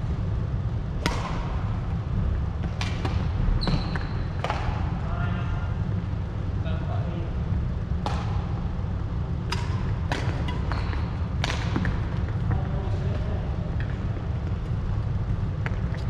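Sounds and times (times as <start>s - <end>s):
steady low rumble: 0.0s - 3.6s, 4.2s - 16.0s
rackets striking shuttlecock: 1.0s - 1.6s, 2.6s - 5.0s, 8.0s - 8.6s, 9.4s - 12.5s.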